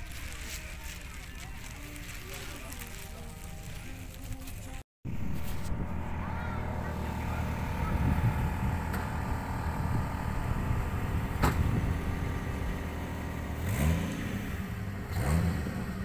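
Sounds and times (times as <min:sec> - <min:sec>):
engine running and revving: 0:05.1 - 0:16.0.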